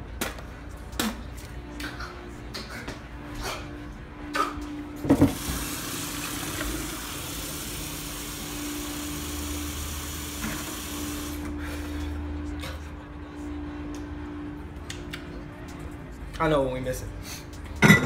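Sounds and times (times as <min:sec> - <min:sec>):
faucet water running: 0:05.2 - 0:11.4.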